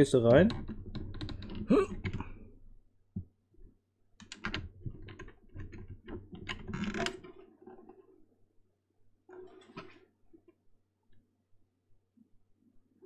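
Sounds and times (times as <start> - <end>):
plastic clicks and rattling: 0.3 - 2.4, 4.2 - 8.0.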